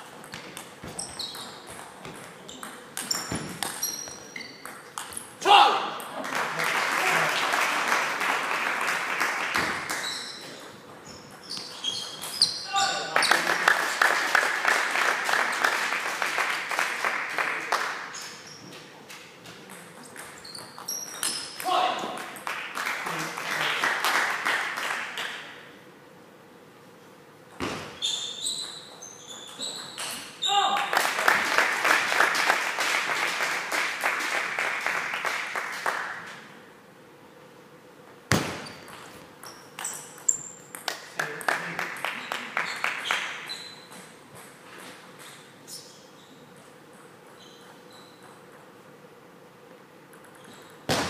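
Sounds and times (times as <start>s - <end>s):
spectators clapping: 6.2s - 10.0s, 13.0s - 18.1s, 22.2s - 25.5s, 30.6s - 36.5s, 40.8s - 43.4s.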